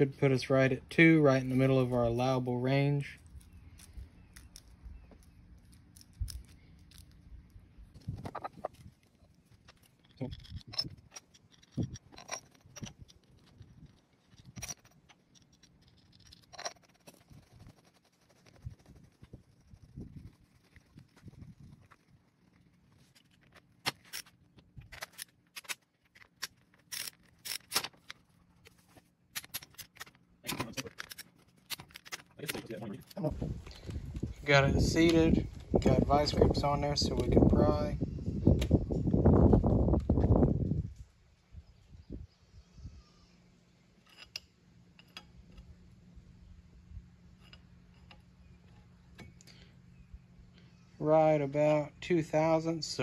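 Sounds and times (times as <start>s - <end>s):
metal clinks: 9.6s - 17.3s.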